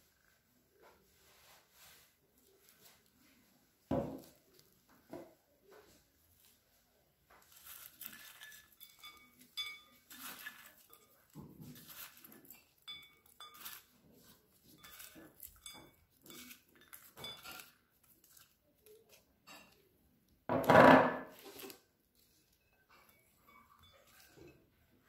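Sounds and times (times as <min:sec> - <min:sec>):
soft rustling of salad tossing: 0:00.1 - 0:20.0, 0:21.3 - 0:25.0
light clinks against glass: 0:08.0 - 0:13.9, 0:14.6 - 0:17.8, 0:22.6 - 0:24.6
dishes clattering: 0:20.5 - 0:21.7.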